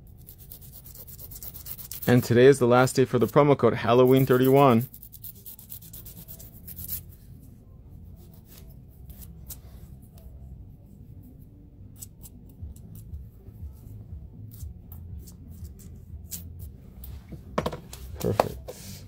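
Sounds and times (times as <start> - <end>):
nail file scraping fingernail: 0.1 - 2.2, 4.0 - 7.1, 11.9 - 13.2, 14.5 - 16.6.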